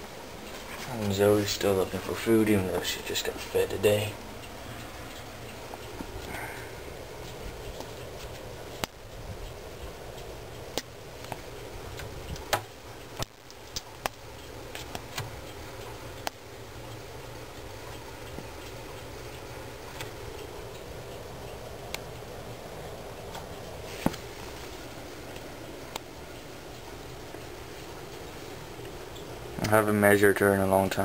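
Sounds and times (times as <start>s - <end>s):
low hum: 0.0s - 31.0s
sharp clicks and taps: 7.2s - 19.0s, 19.9s - 20.9s.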